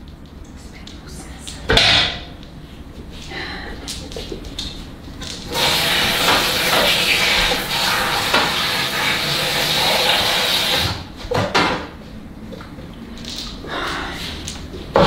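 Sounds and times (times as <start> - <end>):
faucet running water into a pot: 5.5 - 11.0.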